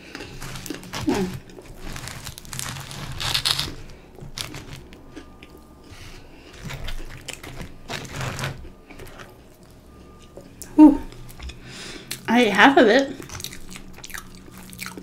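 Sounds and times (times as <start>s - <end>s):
crunching onion rings: 0.0s - 9.8s, 13.1s - 15.0s.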